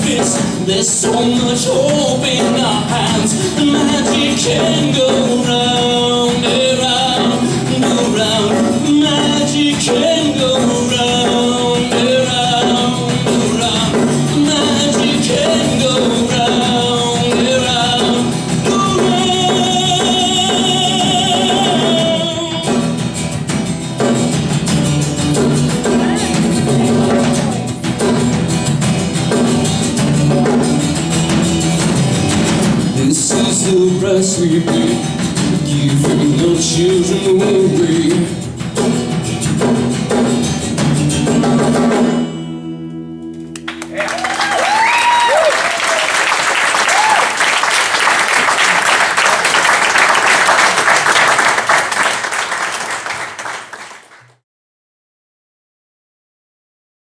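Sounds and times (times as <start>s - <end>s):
man singing: 0.0s - 23.1s, 32.8s - 38.6s
acoustic guitar strumming: 0.0s - 44.0s.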